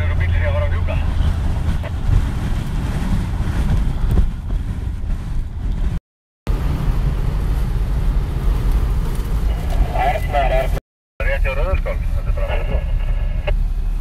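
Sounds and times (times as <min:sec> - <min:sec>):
wind buffeting microphone: 0:00.0 - 0:10.8
trucks rumbling on snow: 0:00.0 - 0:14.0.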